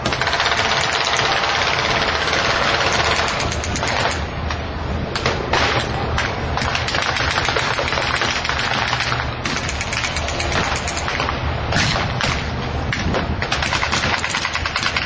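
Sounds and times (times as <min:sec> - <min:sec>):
rapid machine-gun fire: 0:00.0 - 0:04.2, 0:06.6 - 0:12.0, 0:13.5 - 0:15.0.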